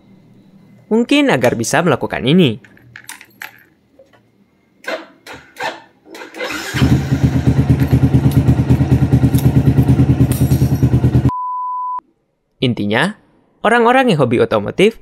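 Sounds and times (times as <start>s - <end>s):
scooter engine starting and running: 5.5s - 11.3s
key and switch clicks: 7.7s - 10.5s
short steady beep: 11.3s - 12.0s.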